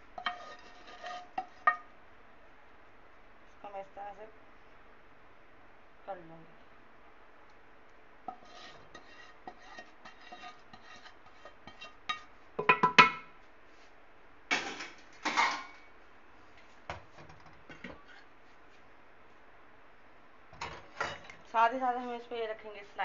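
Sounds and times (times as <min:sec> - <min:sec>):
metal kitchenware clattering: 0:14.5 - 0:15.9, 0:20.6 - 0:21.4.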